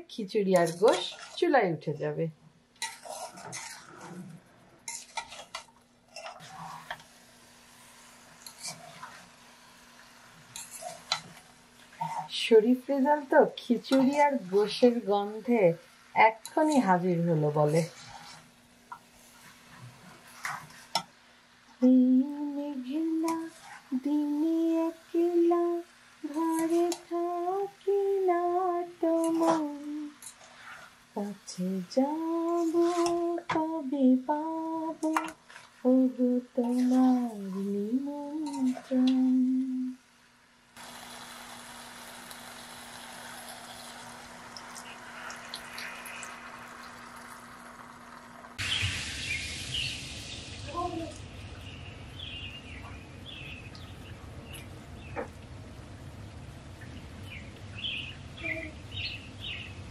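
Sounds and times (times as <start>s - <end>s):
woman humming: 35.9s - 40.0s
water pouring into a pot: 40.8s - 50.7s.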